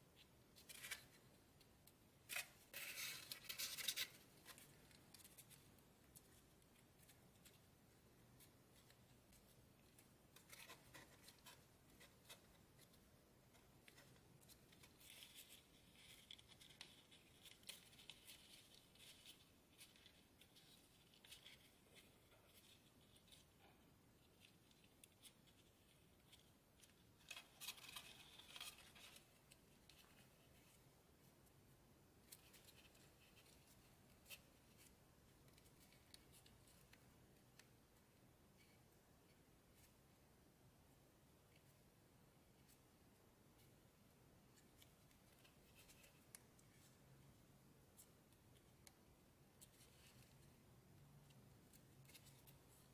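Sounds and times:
paper crinkling while folded: 8.3s - 30.8s.

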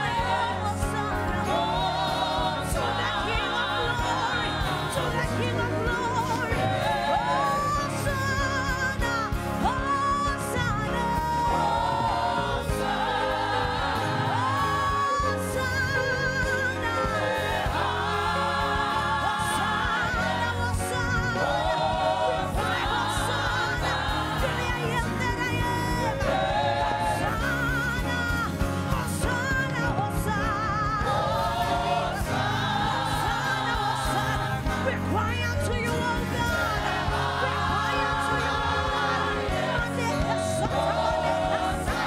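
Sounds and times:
band accompaniment with bass: 0.0s - 42.0s
voices singing gospel song: 0.0s - 42.0s.

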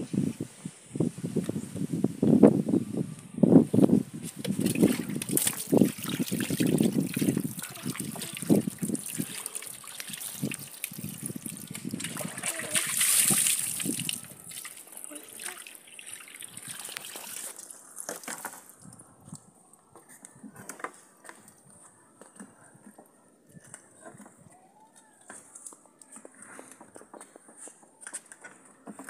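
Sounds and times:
water pouring and splashing: 4.3s - 19.0s.

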